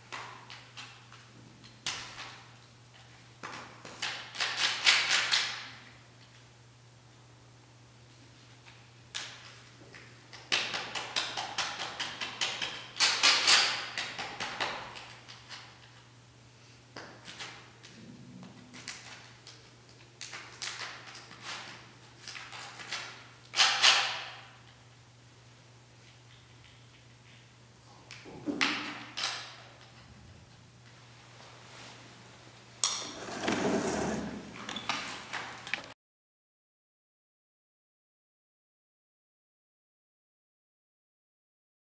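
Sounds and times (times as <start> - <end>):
faint steady hum: 5.7 - 13.2.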